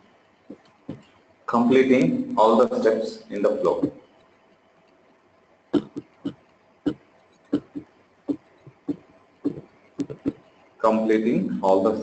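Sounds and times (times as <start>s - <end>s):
keyboard key taps: 9.5s - 10.4s.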